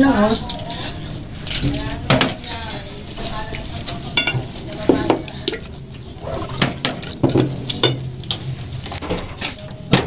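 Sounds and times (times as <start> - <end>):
tableware clinking: 4.2 - 4.4.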